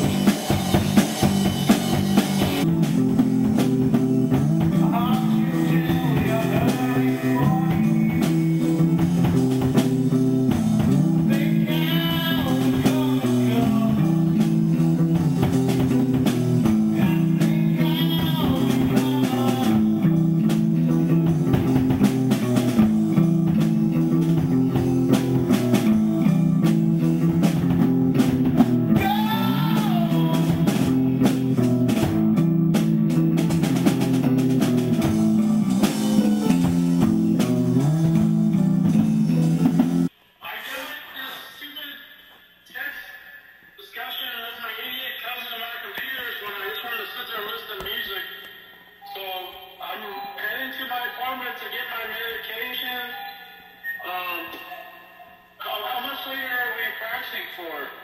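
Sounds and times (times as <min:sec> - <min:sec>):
electric guitar riff: 0:00.0 - 0:40.1
drum kit playing: 0:00.0 - 0:40.2.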